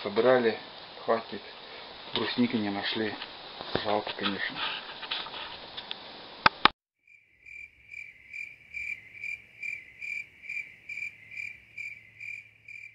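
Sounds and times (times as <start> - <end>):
insect chirping: 0.1 - 4.5, 7.0 - 12.9.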